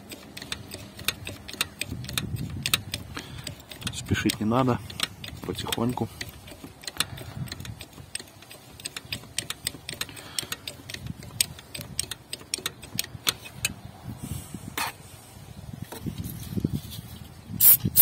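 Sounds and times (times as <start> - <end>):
metallic clicks of spanner: 0.0 - 13.9.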